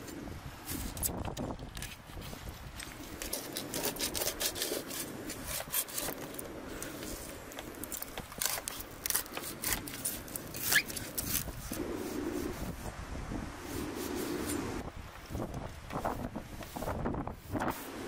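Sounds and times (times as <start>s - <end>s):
knife cutting through fish bone: 3.2s - 6.4s, 7.9s - 11.6s.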